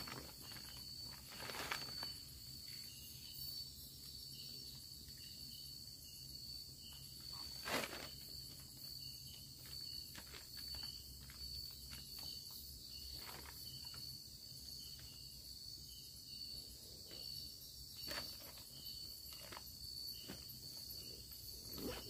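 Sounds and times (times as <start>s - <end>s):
rustling under plastic tarp: 0.0s - 3.0s, 7.1s - 14.1s, 18.0s - 22.0s
night insects buzzing: 0.0s - 22.0s.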